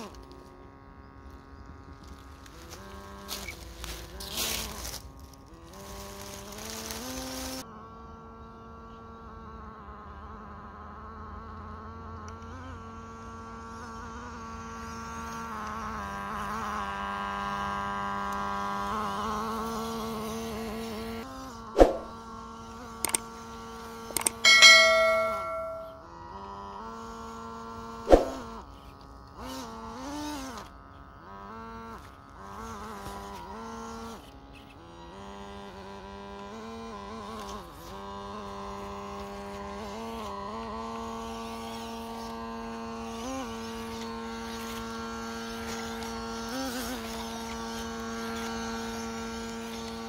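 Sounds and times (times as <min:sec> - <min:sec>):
bell-like ringing tone: 0:24.2 - 0:26.0
sharp hits: 0:24.2 - 0:26.0, 0:28.1 - 0:28.4.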